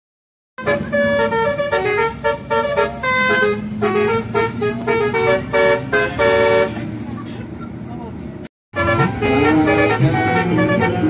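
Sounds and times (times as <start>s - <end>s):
multi-tone bus horn melody: 0.6s - 7.0s, 8.7s - 11.0s.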